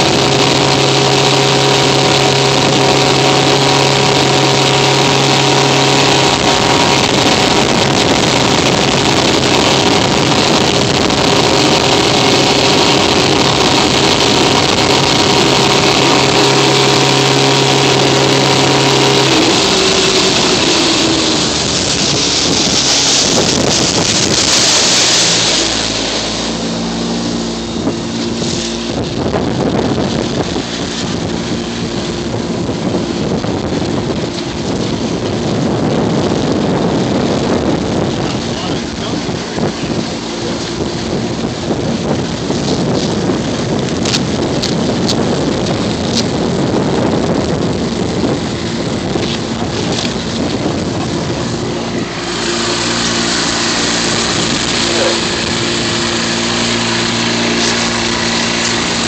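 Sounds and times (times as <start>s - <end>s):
boat engine running: 0.0s - 59.0s
rushing water: 0.0s - 59.0s
wind hiss: 5.8s - 39.9s.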